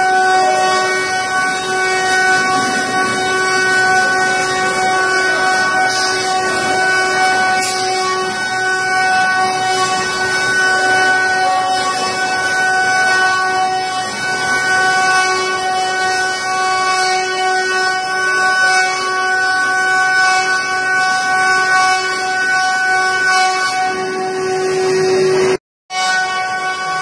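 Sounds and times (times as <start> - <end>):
router spindles whining: 0.0 - 19.4.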